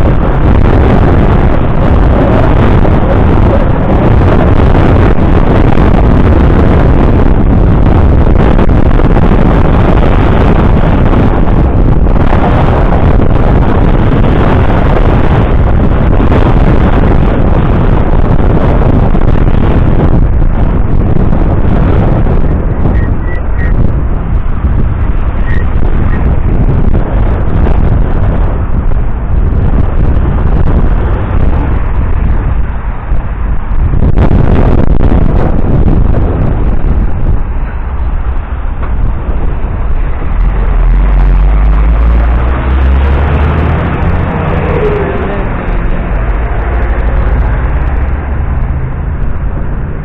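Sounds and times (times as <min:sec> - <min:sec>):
wind buffeting microphone: 0:00.0 - 0:50.0.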